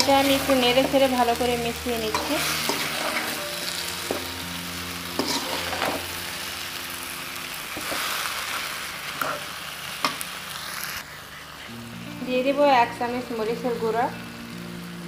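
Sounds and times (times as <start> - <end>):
fruit sizzling in oil: 0.0 - 15.0
metal spatula scraping pan: 2.1 - 4.3, 5.2 - 6.1.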